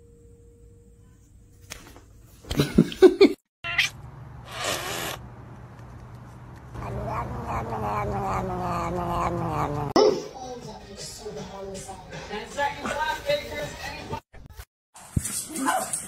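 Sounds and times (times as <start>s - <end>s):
kitten crying: 3.6s - 4.0s, 6.8s - 10.0s
cat hissing: 3.7s - 5.2s, 6.8s - 10.0s
cat growling yowl: 6.8s - 10.0s.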